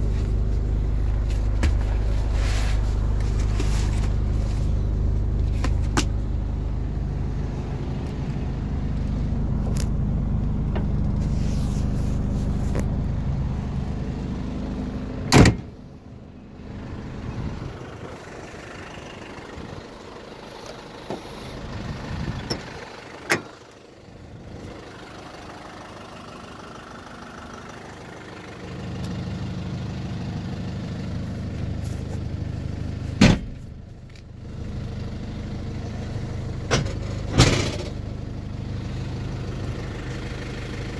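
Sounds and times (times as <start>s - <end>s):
diesel engine idling: 0.0s - 40.9s
door being shut: 15.3s - 15.7s.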